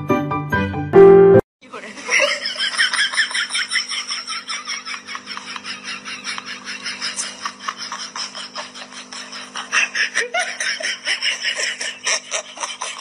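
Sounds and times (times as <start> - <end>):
high-pitched giggling laughter: 2.0 - 13.0.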